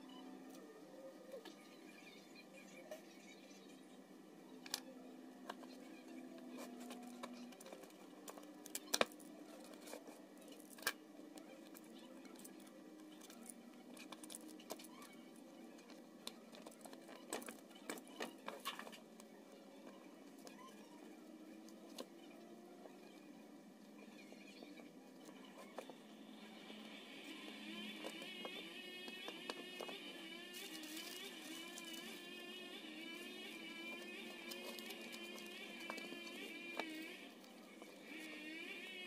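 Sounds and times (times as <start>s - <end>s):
paper rustling: 29.8s - 32.4s.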